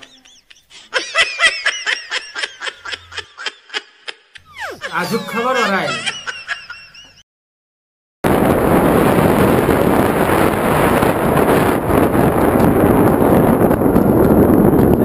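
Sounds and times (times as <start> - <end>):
wind buffeting microphone: 8.3 - 15.0.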